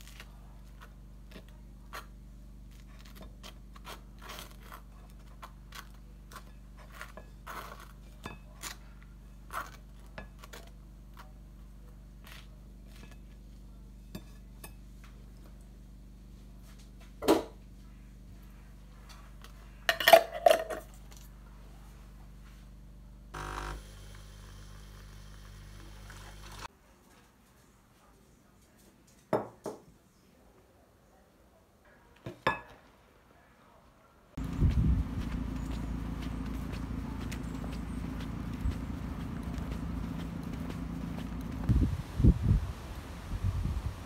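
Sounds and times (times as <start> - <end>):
knife scraping toast: 1.9 - 8.0.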